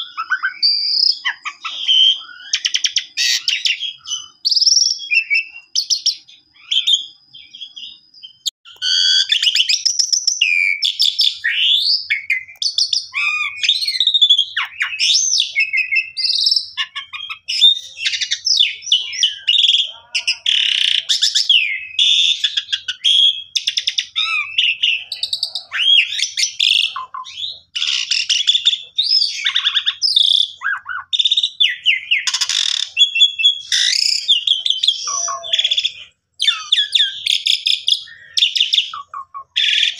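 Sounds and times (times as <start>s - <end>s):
starling singing: 0.0s - 39.9s.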